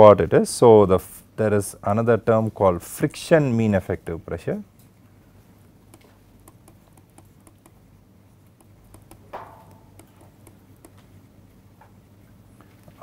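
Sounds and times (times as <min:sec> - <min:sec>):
low steady hum: 0:00.0 - 0:13.0
stylus scratching on tablet screen: 0:05.9 - 0:07.8, 0:08.5 - 0:09.3, 0:09.9 - 0:11.0.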